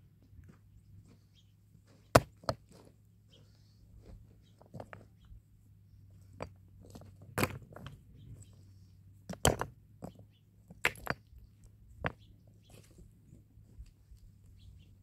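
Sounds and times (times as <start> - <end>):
sharp knocks and crunches: 1.9 - 2.9, 6.2 - 8.3.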